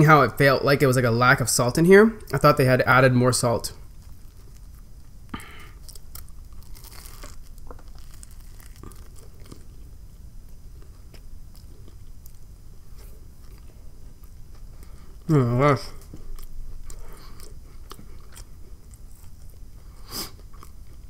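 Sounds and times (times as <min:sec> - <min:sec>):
biting into a sandwich: 0:03.8 - 0:10.0
chewing with crunches: 0:03.8 - 0:21.0.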